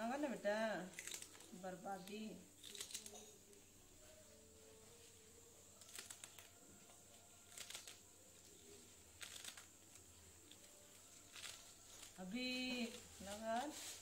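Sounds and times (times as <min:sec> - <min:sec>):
leafy greens snapping and crackling: 0:00.8 - 0:03.4, 0:05.7 - 0:14.0.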